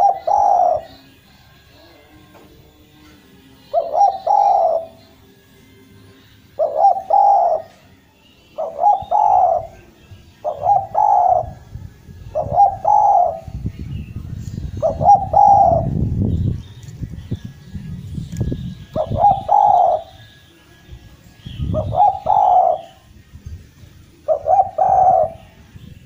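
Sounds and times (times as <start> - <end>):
dove cooing: 0.0 - 1.2, 3.7 - 5.0, 6.5 - 7.8, 8.5 - 11.6, 12.3 - 13.6, 14.8 - 16.0, 18.9 - 20.2, 21.6 - 23.1, 24.2 - 25.6.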